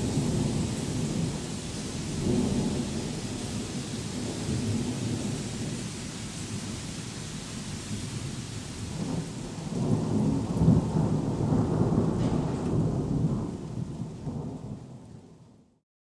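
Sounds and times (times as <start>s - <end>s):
thunder rumbling: 0.0s - 7.1s, 8.0s - 15.4s
heavy rain: 0.0s - 15.8s.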